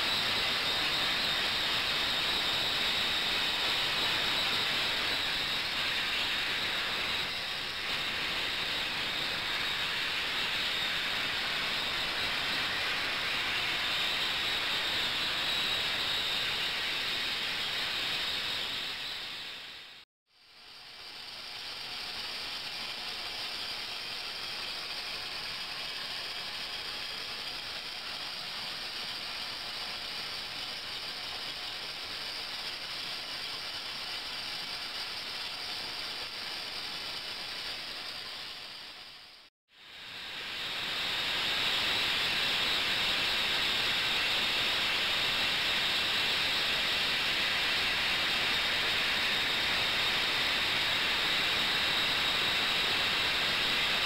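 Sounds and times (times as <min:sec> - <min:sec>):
faint high whine: 0:00.0 - 0:54.0
water churning with steady hiss: 0:00.0 - 0:54.0.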